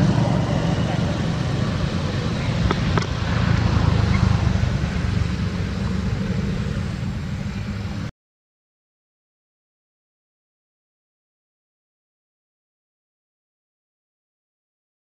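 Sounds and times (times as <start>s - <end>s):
low outdoor rumble: 0.0s - 8.1s.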